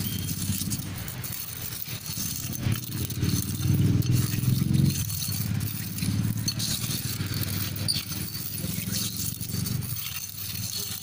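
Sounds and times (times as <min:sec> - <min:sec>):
engine running: 0:00.0 - 0:11.0
metal spoon scraping in metal bowl: 0:00.0 - 0:11.0.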